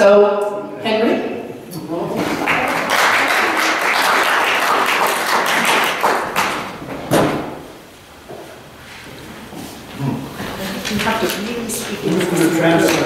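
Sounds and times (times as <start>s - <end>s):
audience applauding: 2.3s - 6.9s, 11.0s - 13.0s
loud thump: 6.9s - 7.6s.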